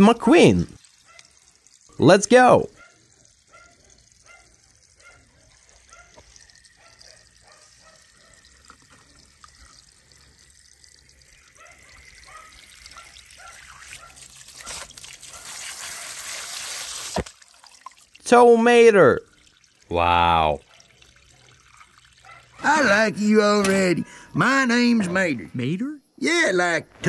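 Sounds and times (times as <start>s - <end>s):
faint water trickling: 0.0s - 25.7s
water jet spraying: 12.2s - 17.3s.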